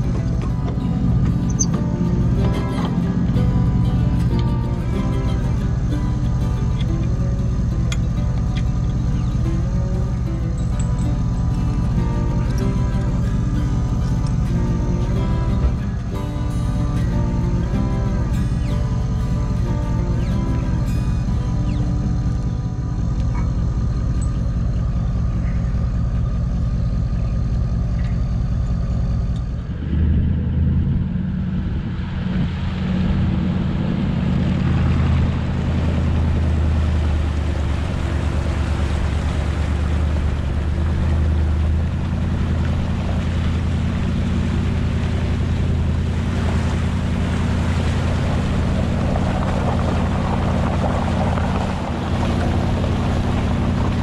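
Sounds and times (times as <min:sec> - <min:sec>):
background music: 0:00.0 - 0:24.6
surf: 0:00.0 - 0:26.4, 0:29.8 - 0:54.0
vehicle engine running: 0:00.0 - 0:54.0
wind noise: 0:29.7 - 0:54.0.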